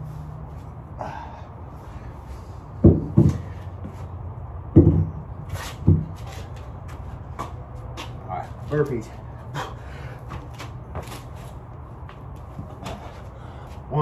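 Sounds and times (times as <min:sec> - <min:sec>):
steady low hum: 0:00.0 - 0:14.0
kettlebell thumps: 0:02.8 - 0:03.5, 0:04.7 - 0:06.2.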